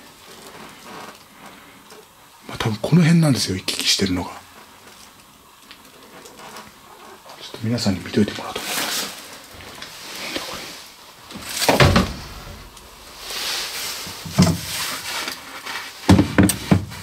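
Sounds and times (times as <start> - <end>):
soft rustling: 4.4 - 16.0
thumps and scrapes: 8.6 - 17.0.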